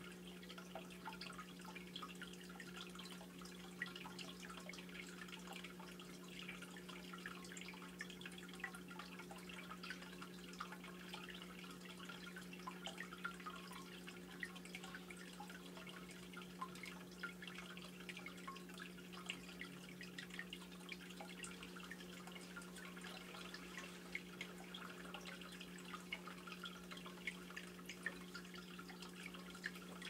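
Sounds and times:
pump humming: 0:00.0 - 0:30.0
water dripping and trickling: 0:00.0 - 0:30.0.

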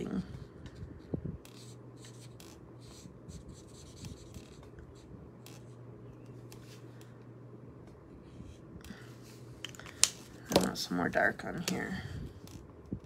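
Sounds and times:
marker scratching on cardstock: 0:01.5 - 0:05.7.

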